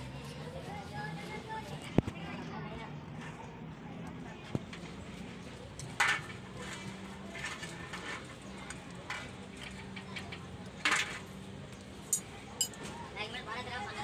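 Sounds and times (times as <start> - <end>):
metal rod scraping in wheel hub: 5.7 - 11.4.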